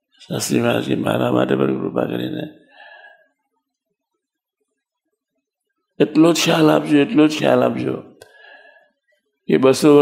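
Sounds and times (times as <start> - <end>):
man speaking: 0.2 - 2.7, 6.0 - 8.2, 9.4 - 10.0.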